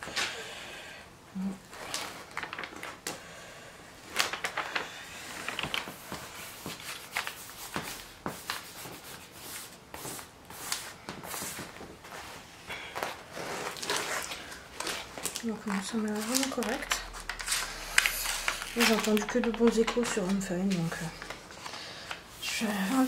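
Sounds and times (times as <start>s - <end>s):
plastic film crinkling: 1.7s - 3.2s, 4.0s - 8.7s, 13.3s - 23.0s.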